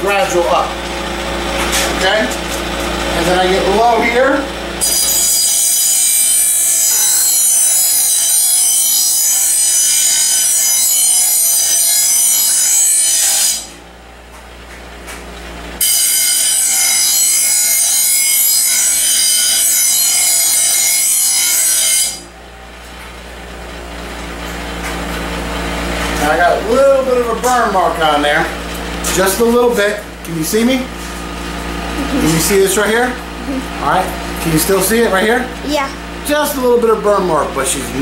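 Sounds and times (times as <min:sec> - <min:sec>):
bench grinder grinding steel: 0:00.0 - 0:13.8, 0:15.8 - 0:22.3, 0:24.2 - 0:38.0
grinder spinning: 0:02.6 - 0:13.7, 0:15.8 - 0:22.3.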